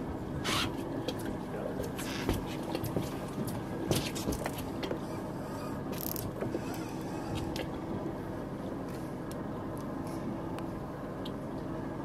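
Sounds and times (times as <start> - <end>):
boat motor humming: 0.0 - 12.0
fishing reel gears ticking: 6.0 - 6.2.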